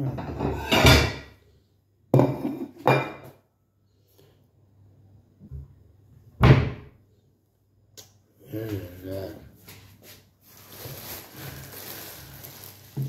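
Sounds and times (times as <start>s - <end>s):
pots and dishes clattering: 0.0s - 1.3s, 2.2s - 3.4s.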